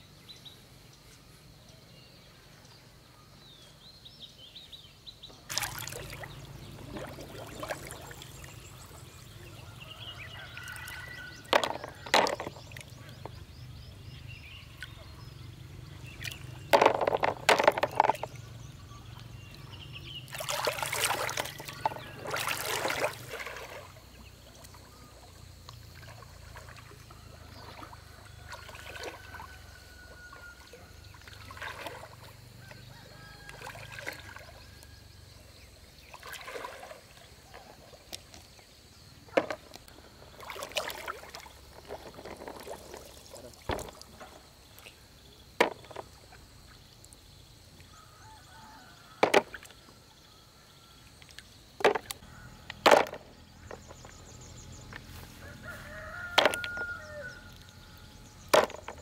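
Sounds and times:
birds chirping: 0.0 - 29.0, 50.2 - 59.0
water sloshing and splashing: 5.4 - 50.2, 51.1 - 59.0
snails clattering into plastic basin: 11.4 - 13.3, 16.6 - 18.4, 52.8 - 54.1, 56.1 - 57.0, 58.5 - 59.0.

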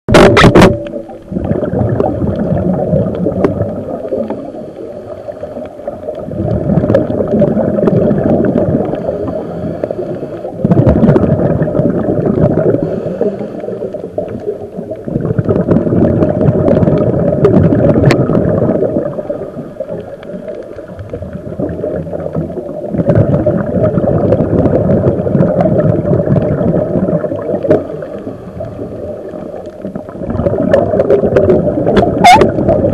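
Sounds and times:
exhaled bubbles gurgling: 0.1 - 32.9
underwater regulator breathing: 8.8 - 10.7, 12.7 - 14.2.

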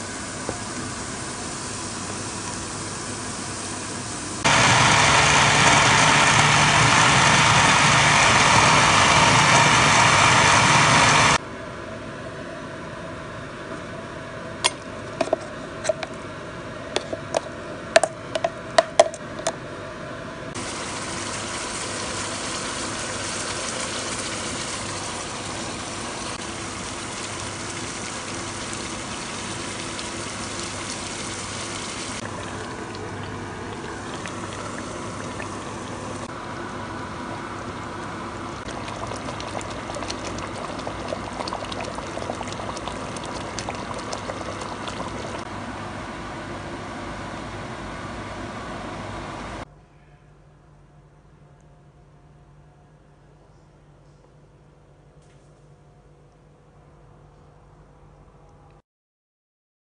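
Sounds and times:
food sizzling and bubbling in pot: 0.0 - 11.4, 20.6 - 45.6.

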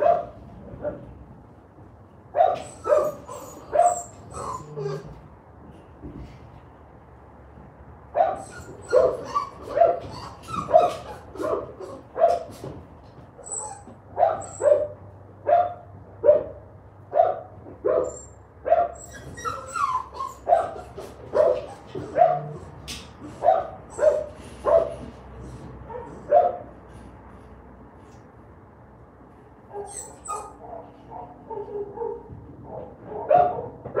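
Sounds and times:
dog barking: 0.0 - 1.0, 2.4 - 4.0, 8.2 - 12.5, 14.2 - 19.0, 20.5 - 22.7, 23.4 - 25.1, 25.9 - 26.7, 30.5 - 34.0.

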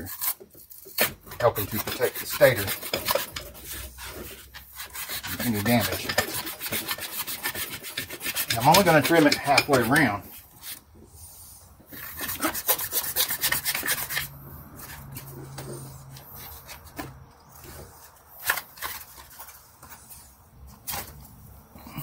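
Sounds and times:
cardboard rubbing and scraping: 0.0 - 10.9.

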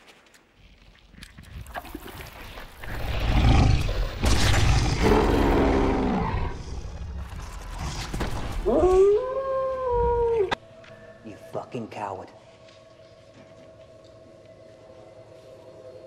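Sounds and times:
werewolf roaring: 4.6 - 7.0.

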